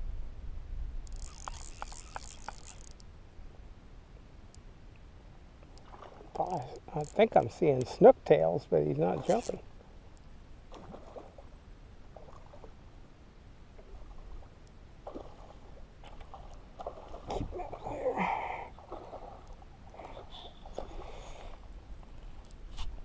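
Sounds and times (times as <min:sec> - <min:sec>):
knocks and rustles of fishing gear: 0:01.1 - 0:03.0, 0:06.4 - 0:07.5
water lapping around a boat: 0:05.7 - 0:07.6, 0:10.6 - 0:13.0, 0:13.7 - 0:22.7.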